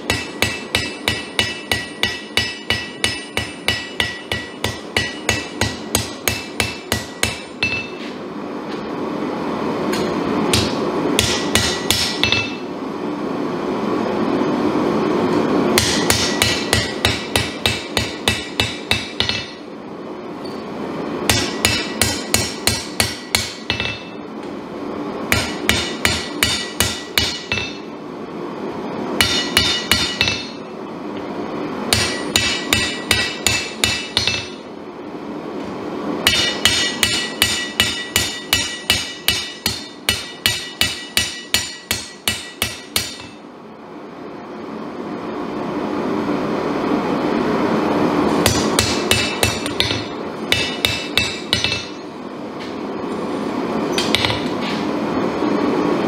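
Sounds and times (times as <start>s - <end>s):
hammer striking blade on anvil: 0.0s - 8.2s, 9.9s - 12.7s, 15.8s - 19.6s, 21.3s - 24.2s, 25.3s - 27.9s, 29.2s - 30.6s, 31.9s - 34.6s, 36.2s - 43.4s, 48.4s - 52.1s, 53.9s - 54.6s.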